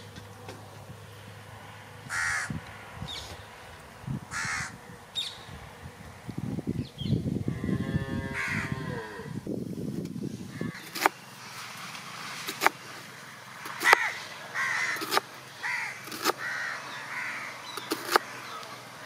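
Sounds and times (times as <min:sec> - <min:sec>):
crows cawing: 0:02.0 - 0:02.6, 0:04.3 - 0:05.3, 0:07.6 - 0:09.0, 0:10.5 - 0:11.2, 0:13.6 - 0:19.0.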